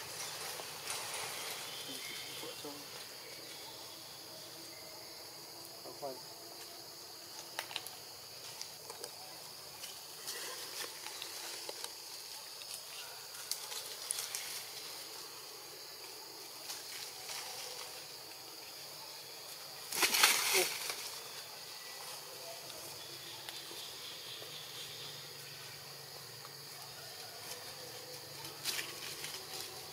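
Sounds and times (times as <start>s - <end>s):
rustles and scrapes in dry leaves: 0.0s - 2.4s, 9.8s - 15.2s, 16.6s - 18.2s, 19.9s - 22.3s, 27.0s - 29.9s.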